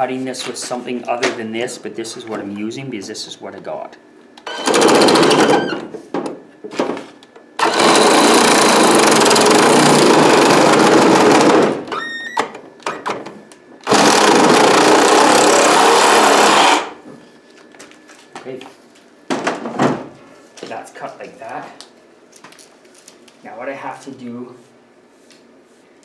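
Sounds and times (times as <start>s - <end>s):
reciprocating saw cutting plastic pipe: 7.6s - 11.5s, 13.8s - 17.0s.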